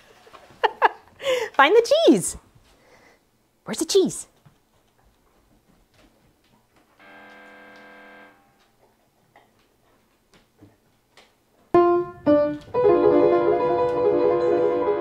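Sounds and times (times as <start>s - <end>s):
buzzer wrong sound effect: 7.0s - 8.6s
piano chords: 11.8s - 15.0s.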